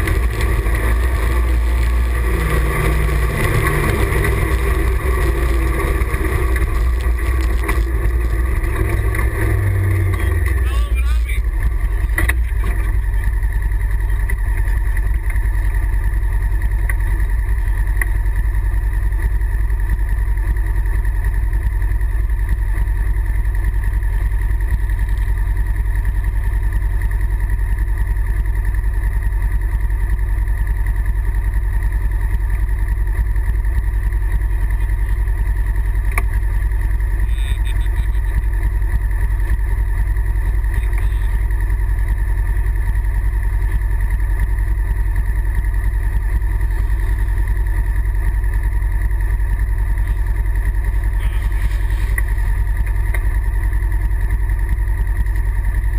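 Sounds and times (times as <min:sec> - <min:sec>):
vehicle engine idling: 0:00.0 - 0:55.9.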